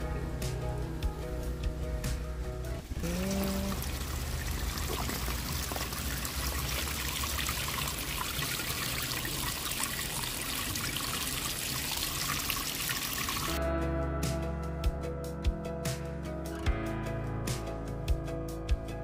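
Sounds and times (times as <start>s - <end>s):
stream water flowing: 2.8s - 13.6s.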